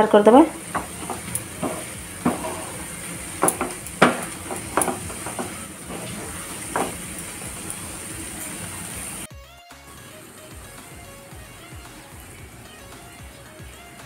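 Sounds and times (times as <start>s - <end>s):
faint steady hiss: 0.0s - 9.3s
spatula scraping a frying pan: 0.5s - 9.2s.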